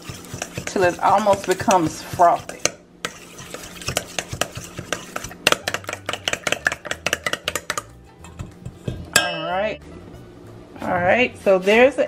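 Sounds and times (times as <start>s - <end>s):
spoon beating egg in metal bowl: 0.0s - 9.4s.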